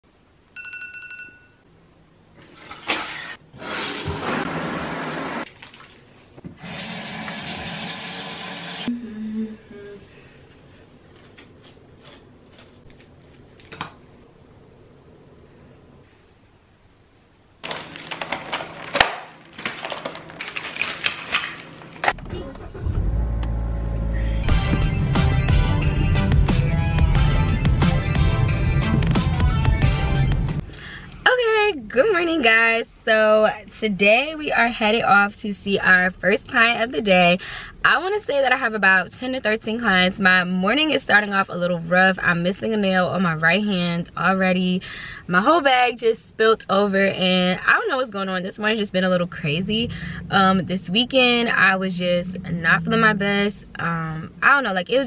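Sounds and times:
smartphone alarm tone: 0:00.6 - 0:01.6
plastic packaging crinkling: 0:17.6 - 0:22.2
car engine starting and rumbling: 0:22.1 - 0:26.9, 0:48.8 - 0:54.8.

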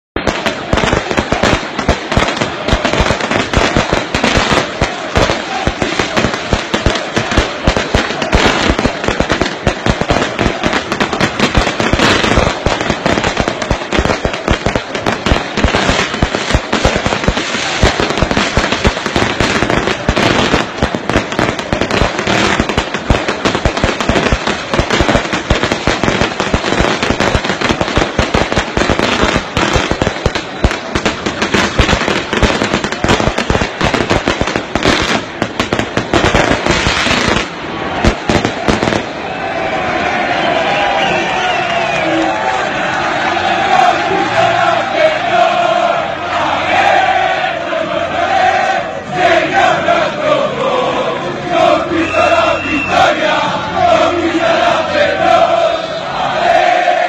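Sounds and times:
fireworks popping and crackling: 0:00.2 - 0:39.5.

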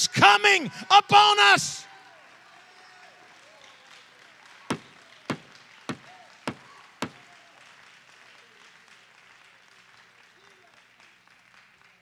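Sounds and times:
sharp knocks: 0:04.7 - 0:07.2.

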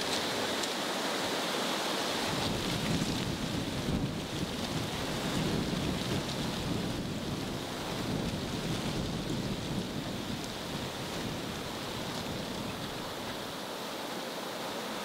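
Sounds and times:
wind buffeting microphone: 0:02.2 - 0:13.6.

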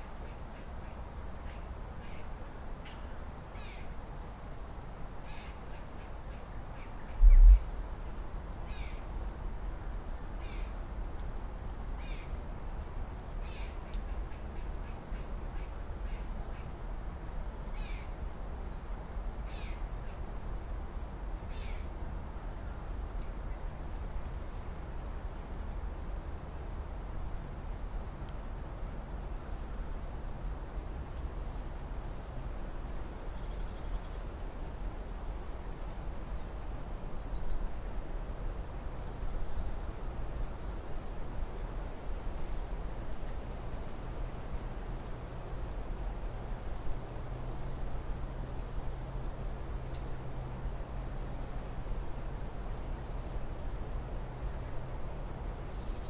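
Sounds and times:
low rumble: 0:07.2 - 0:07.7.

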